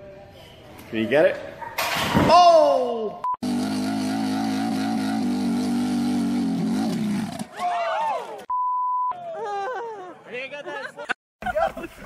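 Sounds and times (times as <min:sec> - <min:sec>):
dirt bike engine revving: 0:03.4 - 0:07.5
people shouting: 0:07.5 - 0:08.4
steady beep tone: 0:08.5 - 0:09.1.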